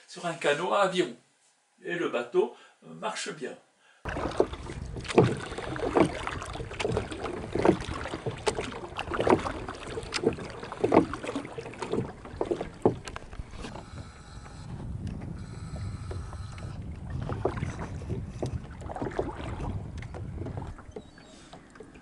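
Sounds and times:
wind on microphone: 4.1s - 21.5s
oars stroking water: 4.1s - 22.0s
water lapping: 4.1s - 22.0s.

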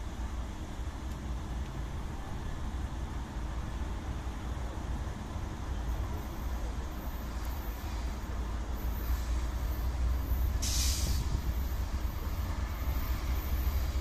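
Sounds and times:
distant freight train rumbling: 0.0s - 14.0s
air brake hiss: 7.3s - 11.6s.

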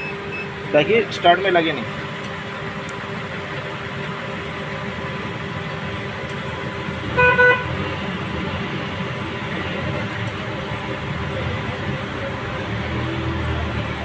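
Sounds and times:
steady traffic noise: 0.0s - 14.0s
vehicle horn tooting: 7.1s - 7.8s.

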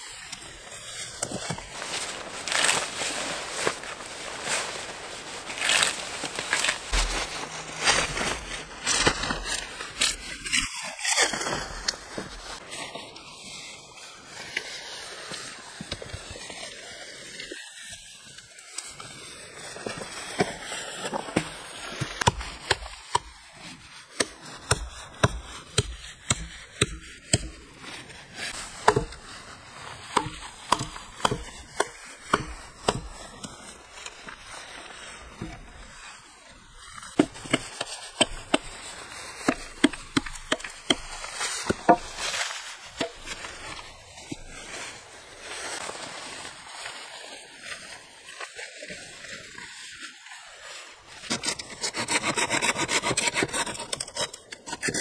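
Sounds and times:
axe chopping wood: 21.4s - 23.3s, 24.2s - 27.6s, 28.8s - 29.3s, 30.0s - 33.1s, 39.4s - 42.2s.

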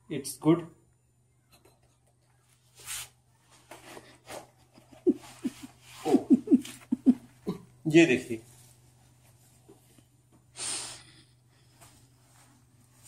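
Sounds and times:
short breath: 10.6s - 11.4s.

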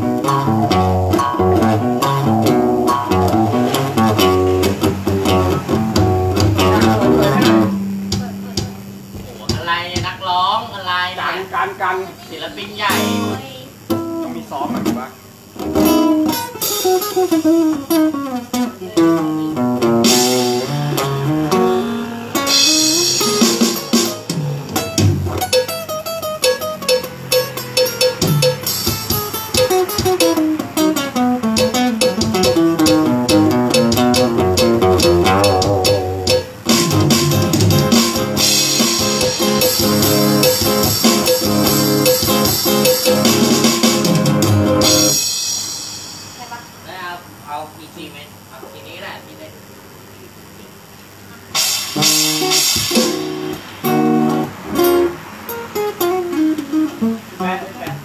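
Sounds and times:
electric guitar playing fast runs: 0.0s - 9.4s, 15.3s - 46.4s, 51.5s - 57.3s
drums with cymbals: 0.0s - 10.4s, 15.3s - 47.4s, 51.5s - 57.0s.

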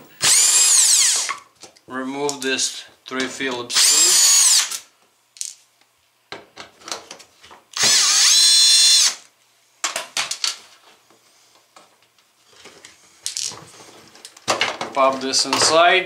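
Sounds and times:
cordless drill whining: 0.2s - 1.4s, 3.7s - 4.8s, 7.8s - 9.3s.

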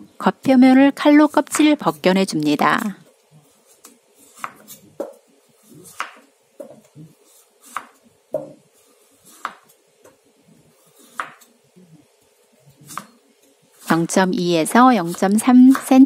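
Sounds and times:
knife cutting on wooden board: 3.6s - 8.0s, 8.8s - 9.7s, 10.8s - 11.5s, 12.8s - 13.2s.

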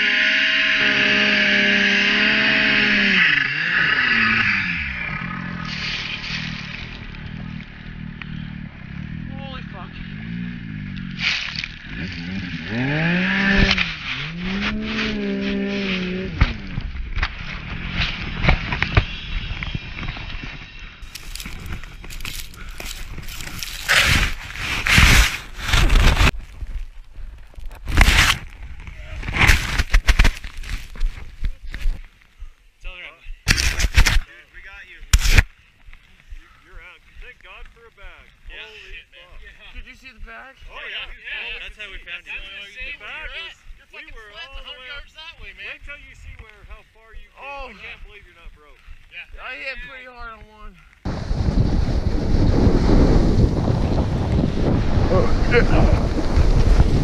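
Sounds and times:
snowmobile engine revving: 0.0s - 20.2s, 21.0s - 26.3s, 37.9s - 46.3s, 50.6s - 57.0s
rough rushing noise of snow: 5.6s - 7.3s, 21.0s - 26.8s, 27.7s - 32.0s, 51.1s - 57.0s.

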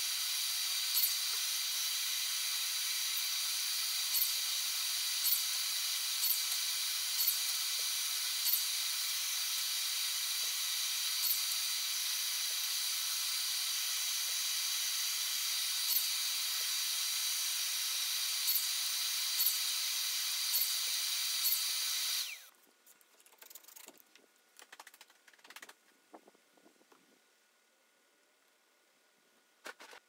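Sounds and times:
power tool whining hiss: 0.0s - 22.5s.

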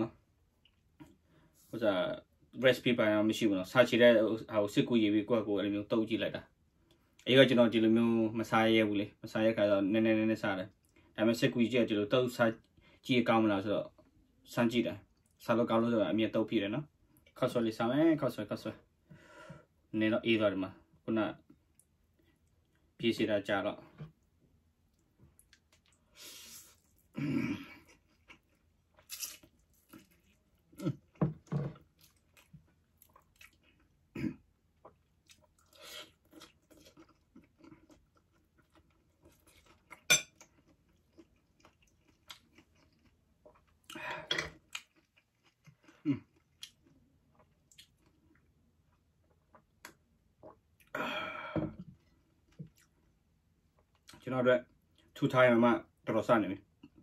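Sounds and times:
chewing and wet mouth clicks: 44.7s - 48.5s.

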